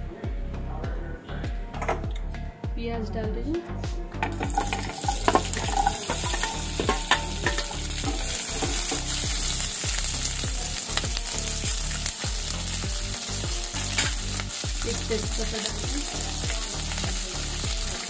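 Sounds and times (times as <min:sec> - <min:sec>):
steel skimmer scraping a pan: 0:04.3 - 0:09.4
onions sizzling in hot oil: 0:04.4 - 0:18.0.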